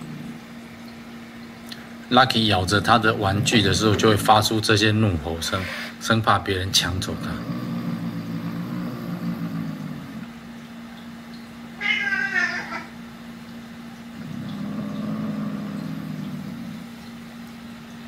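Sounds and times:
cat growling low: 0.0 - 0.6, 2.6 - 4.4, 6.8 - 10.4, 14.1 - 17.1
cat yowling: 11.8 - 13.0.

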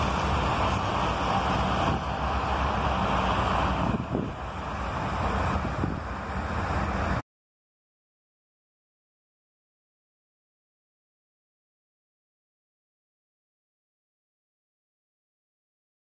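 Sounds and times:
road traffic noise: 0.0 - 7.2
wind rumbling on microphone: 0.0 - 7.2.

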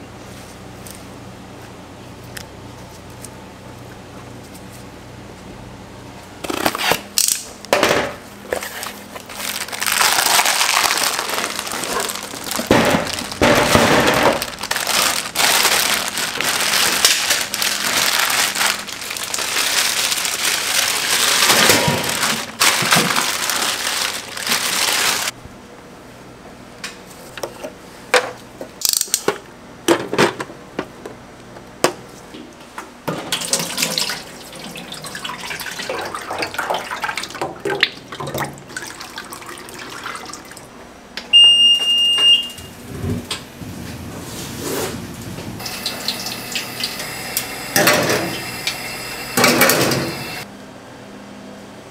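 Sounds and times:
plastic bag rustling and crinkling: 8.6 - 25.4.

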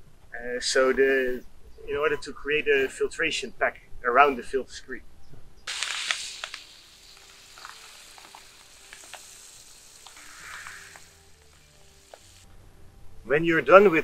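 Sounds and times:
sand pouring and trickling: 5.7 - 12.4.

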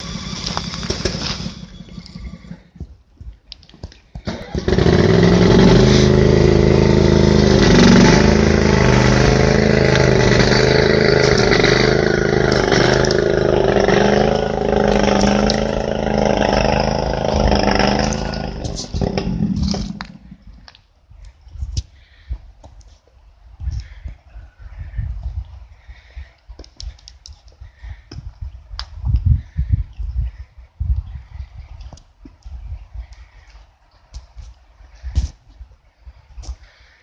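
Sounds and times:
engine humming: 0.0 - 20.8.

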